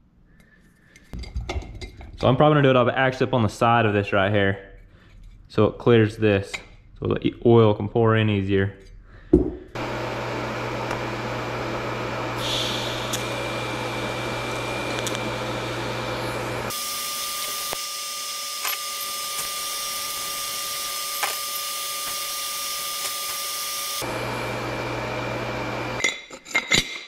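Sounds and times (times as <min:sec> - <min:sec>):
welding arc humming and hissing: 0:09.8 - 0:26.0.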